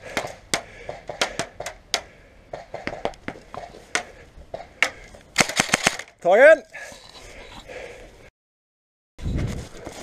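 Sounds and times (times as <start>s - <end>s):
airsoft gunshots: 5.4s - 6.0s.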